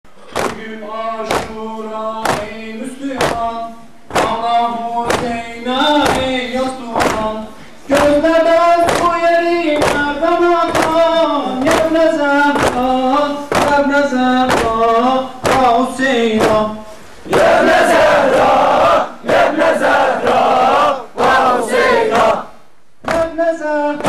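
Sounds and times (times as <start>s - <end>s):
sharp rhythmic beats: 0.1s - 24.0s
person chanting a lament: 0.2s - 19.9s
crowd shouting a chant: 17.3s - 22.5s.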